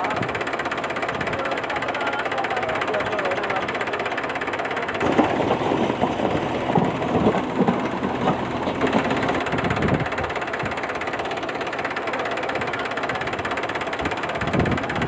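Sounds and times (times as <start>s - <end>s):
toy tractor engine chugging: 0.0s - 15.0s
knocks and clatter on sand: 5.0s - 9.9s.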